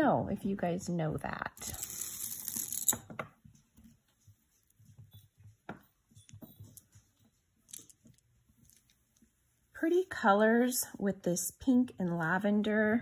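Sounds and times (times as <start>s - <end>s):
beads clicking softly: 4.6s - 9.4s.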